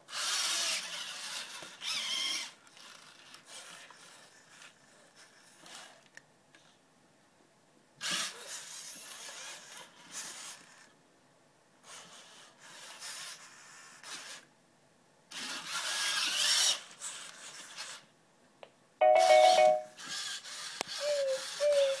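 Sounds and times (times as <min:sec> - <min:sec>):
robot servo motors whirring: 0:00.1 - 0:06.0, 0:08.0 - 0:10.9, 0:15.3 - 0:18.0, 0:20.0 - 0:22.0
brief wavering tone: 0:19.0 - 0:19.9
loud electronic chime: 0:19.0 - 0:19.9.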